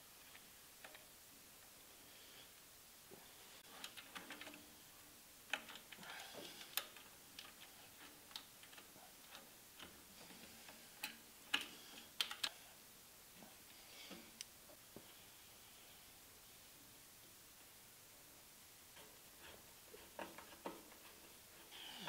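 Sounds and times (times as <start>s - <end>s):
small clicks of wires handled: 5.5s - 12.6s.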